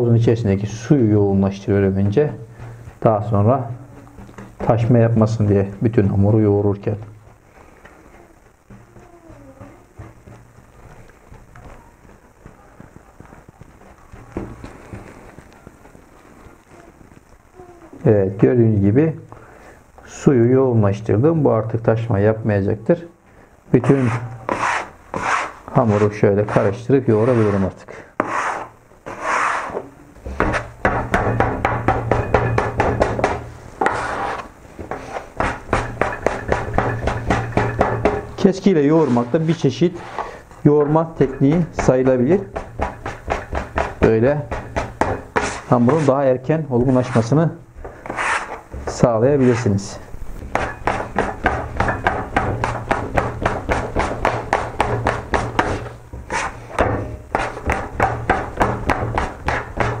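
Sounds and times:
dough scraper tapping on stone: 30.4 - 34.0, 35.4 - 38.4, 41.3 - 45.6, 50.4 - 60.0.

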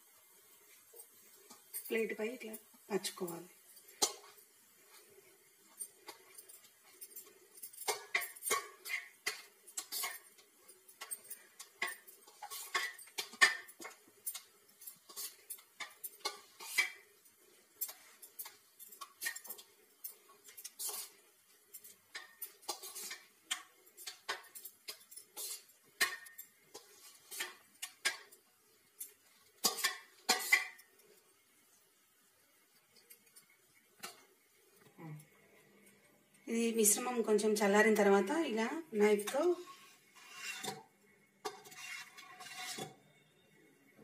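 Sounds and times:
metal spatula scraping metal plate: 7.8 - 10.3, 11.0 - 17.0, 20.5 - 21.2, 22.1 - 28.3, 29.6 - 30.8, 39.2 - 43.0.

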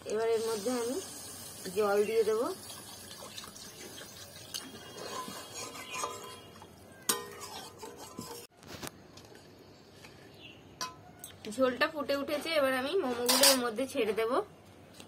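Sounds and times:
metal spatula scraping wok: 4.7 - 8.5, 12.2 - 13.8
spatula clinking against pan: 5.0 - 8.5.

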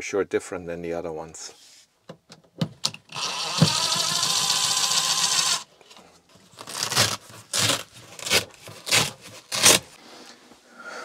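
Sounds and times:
cordless driver running: 3.1 - 5.7.

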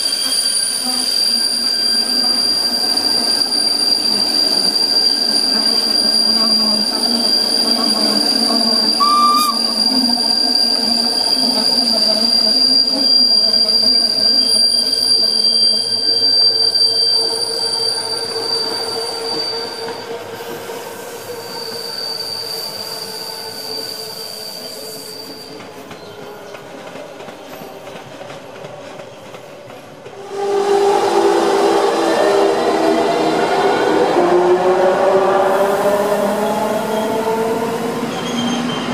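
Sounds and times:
train wheels squealing: 0.0 - 38.9
train rolling rumble: 24.6 - 38.9.

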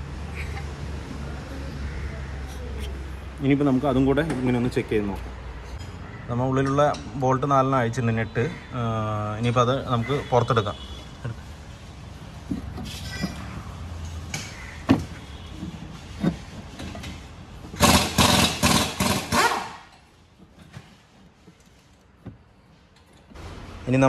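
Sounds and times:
metal rattling and scraping: 12.3 - 22.0
knocks and clunks: 12.4 - 17.8.

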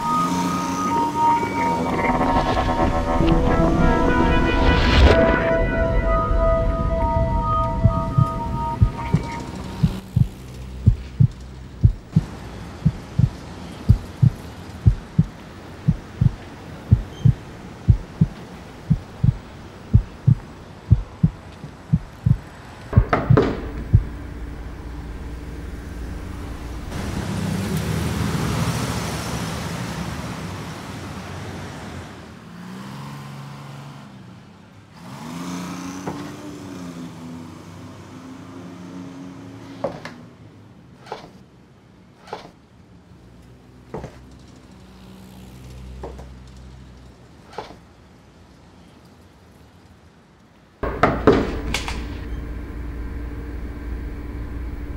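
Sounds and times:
low hum with sliding tones: 0.0 - 13.3, 15.9 - 27.1, 50.8 - 54.9
rumble of noise: 1.2 - 27.4, 50.8 - 54.9
heavy hit: 1.4 - 12.2
low heartbeat-like thumping: 7.8 - 24.2.

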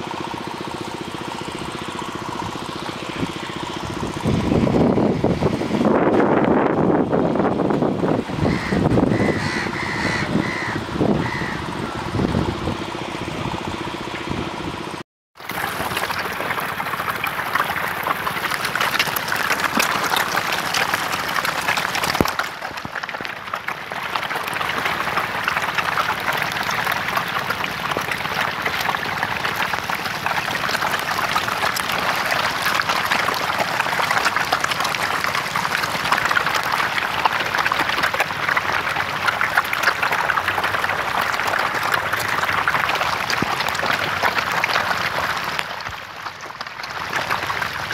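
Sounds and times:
fish splashing in shallow water: 8.2 - 47.9.

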